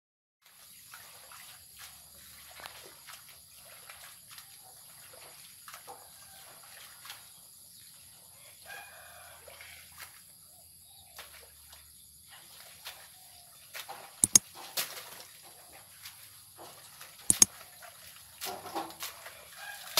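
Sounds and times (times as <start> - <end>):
rooster crowing faintly: 8.4 - 9.9, 19.1 - 19.9
small clicks: 14.2 - 14.4.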